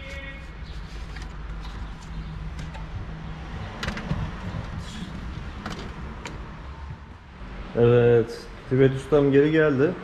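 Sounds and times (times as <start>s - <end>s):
steady low rumble: 1.9s - 7.5s
clicks and knocks of trim parts: 3.7s - 4.8s.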